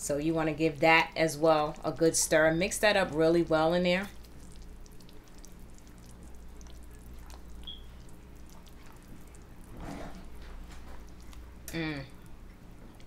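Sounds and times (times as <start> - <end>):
low steady hum: 0.0 - 13.0
spatula stirring thick sauce: 4.2 - 10.4.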